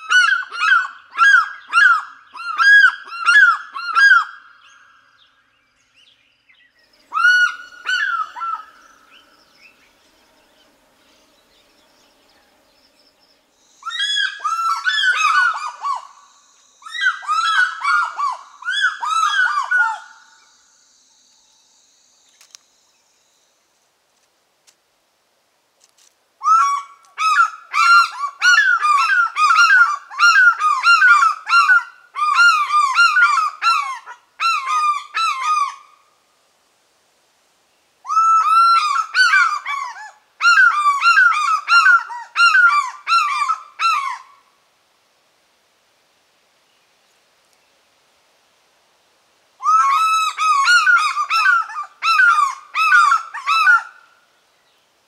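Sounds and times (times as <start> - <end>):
eagles yelping calls: 7.1 - 9.3, 13.8 - 20.3, 38.1 - 44.3, 49.6 - 54.0.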